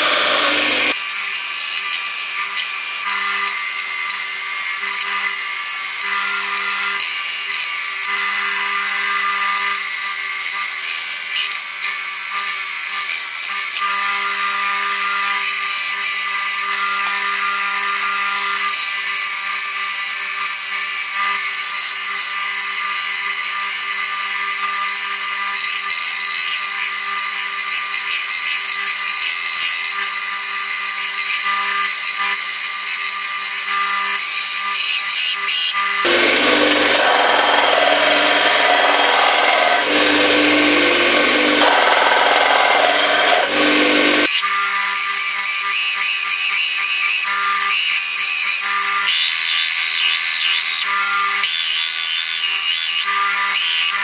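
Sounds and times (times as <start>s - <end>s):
belt grinder motor hum: 0.0s - 54.0s
metal grinding on abrasive belt: 22.1s - 44.5s.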